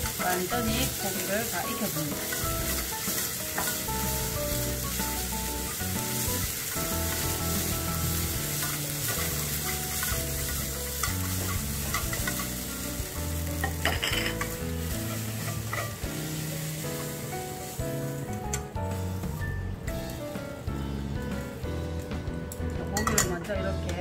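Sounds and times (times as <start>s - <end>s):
meat sizzling in oil: 0.0s - 20.4s
chopsticks clatter: 8.6s - 12.5s.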